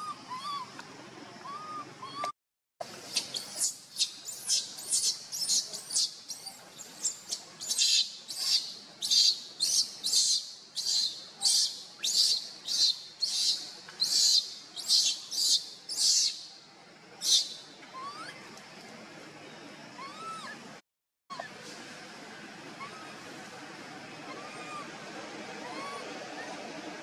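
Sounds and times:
baby monkey screaming: 0.0s - 0.7s, 3.1s - 16.4s, 17.2s - 18.4s, 20.0s - 20.6s, 22.8s - 23.2s, 24.2s - 24.9s, 25.6s - 26.5s.

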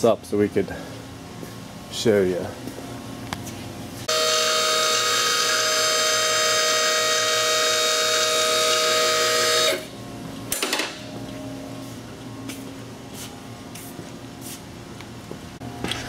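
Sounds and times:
loud machine whine: 4.0s - 12.1s.

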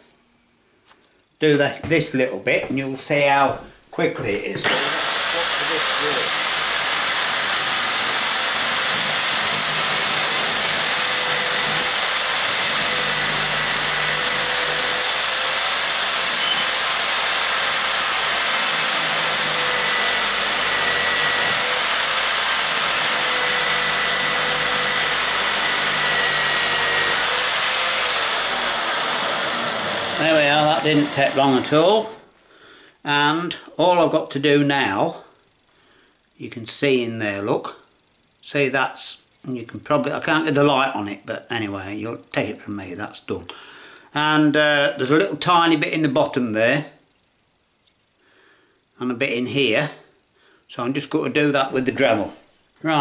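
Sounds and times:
electric drill spinning: 4.6s - 32.2s.

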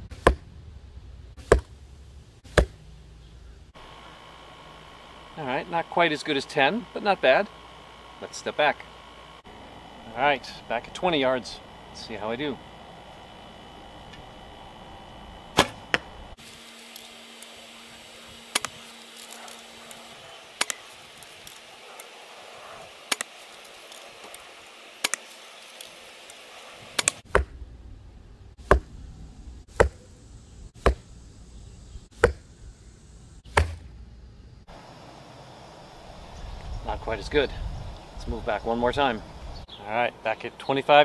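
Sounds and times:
bow release and arrow strike: 15.5s - 16.1s, 18.5s - 19.5s, 20.6s - 20.9s, 25.0s - 25.3s, 33.5s - 33.9s.

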